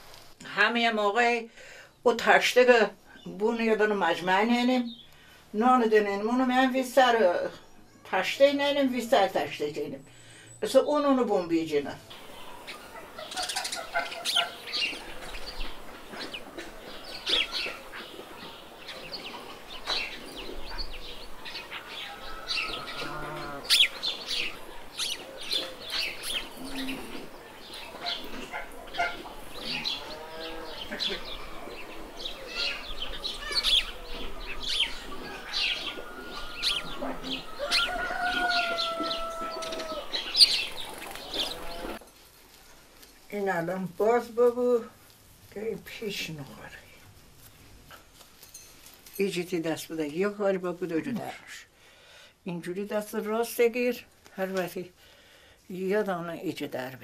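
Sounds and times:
birds chirping: 3.1s - 42.0s
chickens calling: 12.1s - 42.0s.

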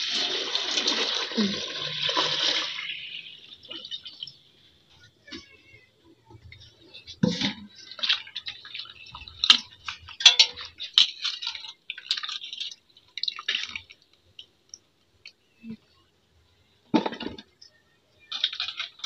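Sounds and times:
water dripping: 0.0s - 5.0s, 6.5s - 15.6s
water splashing and sloshing: 0.0s - 15.2s, 16.9s - 19.0s.

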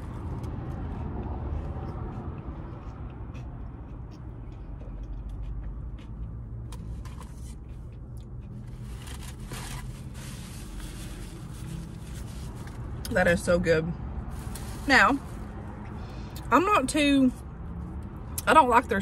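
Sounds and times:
chewing mouth sounds: 0.1s - 6.9s
paper rustling and crinkling: 8.9s - 12.8s.

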